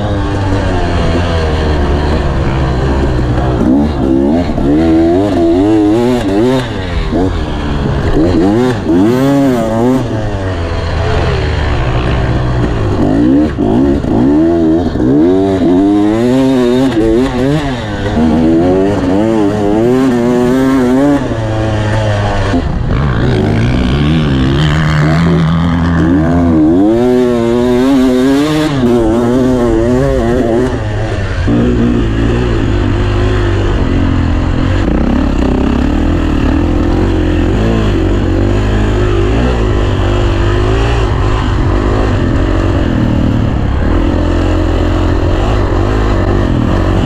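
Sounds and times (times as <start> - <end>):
dirt bike engine revving: 0.0 - 47.0.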